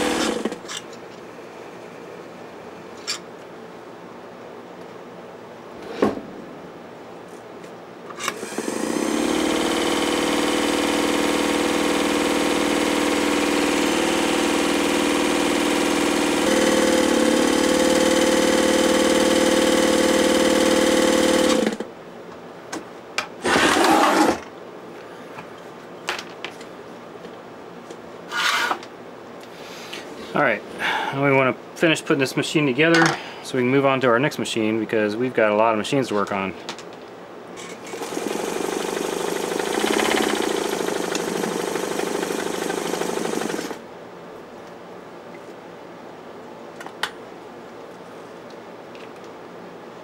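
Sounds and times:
sewing machine motor running: 0.0s - 0.6s, 8.3s - 21.8s, 23.4s - 24.4s, 37.6s - 43.8s.

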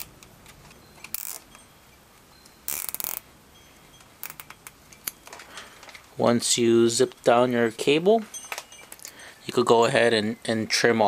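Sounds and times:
zip tie ratcheting clicks: 1.1s - 1.5s, 2.7s - 3.2s, 4.2s - 4.5s.

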